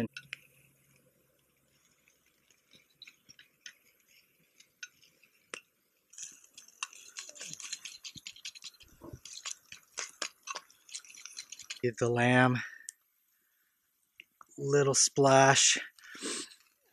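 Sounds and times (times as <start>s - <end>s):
wood fire crackling: 0.0s - 16.9s
metal utensil scraping a pan: 6.1s - 11.9s.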